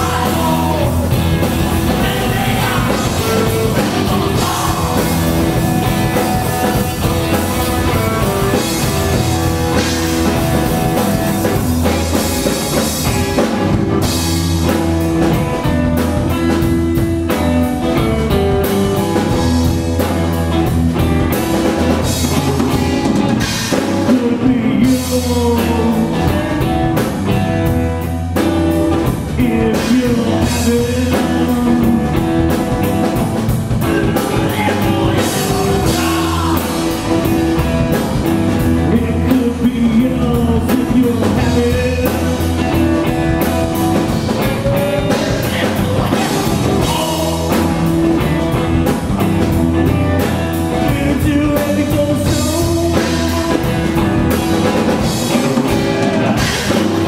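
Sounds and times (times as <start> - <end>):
distorted electric guitar: 0.0 - 57.0
drum kit: 0.0 - 57.0
electric bass: 0.0 - 57.0
live rock band playing: 0.0 - 57.0.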